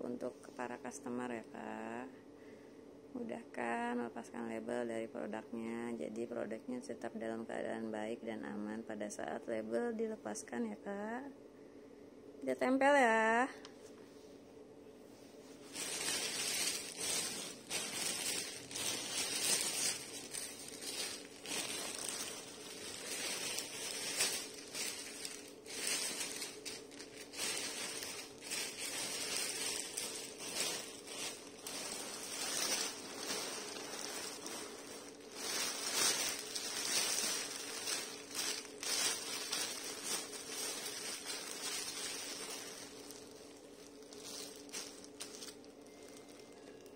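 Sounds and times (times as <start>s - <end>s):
plastic wrap crinkling: 15.6s - 46.9s.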